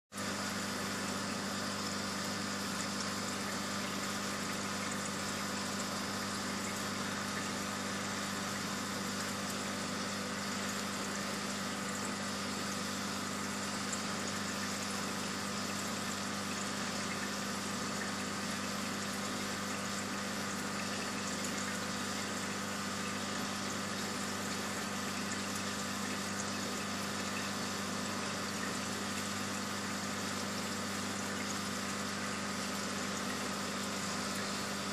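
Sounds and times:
aquarium pump hum: 0.1 - 34.9.

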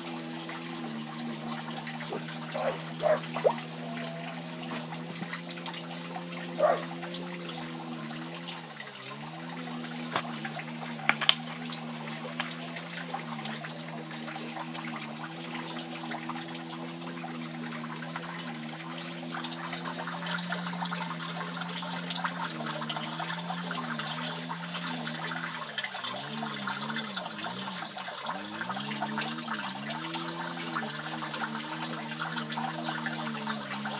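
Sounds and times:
water trickling in fish tank: 0.0 - 33.9
small sharp knocks: 11.0 - 11.4.

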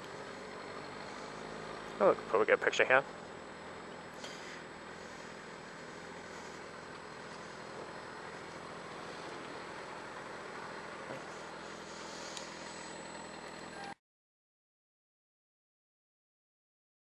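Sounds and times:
motorcycle engine idling: 0.0 - 13.8
even hiss: 0.1 - 13.4.

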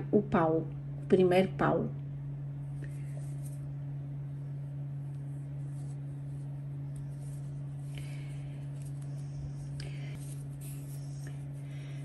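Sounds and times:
low electrical hum: 0.0 - 12.0
crochet hook scratching thread: 8.8 - 11.5.

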